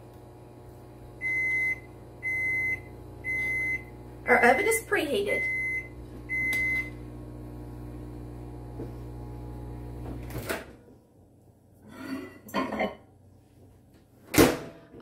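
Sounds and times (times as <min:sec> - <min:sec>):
kitchen appliance humming: 0:00.0 - 0:11.8
oven beep: 0:01.2 - 0:04.0, 0:05.3 - 0:07.0.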